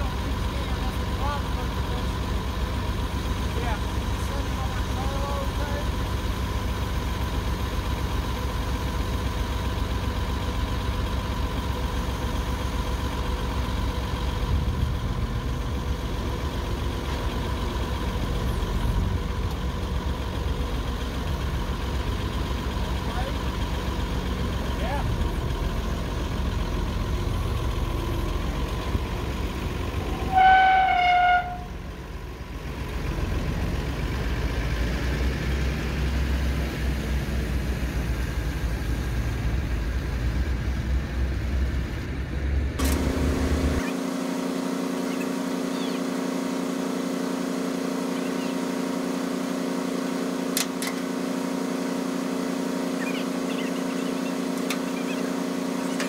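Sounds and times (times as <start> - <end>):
forklift engine running: 0.0 - 56.0
horn toot: 30.1 - 31.8.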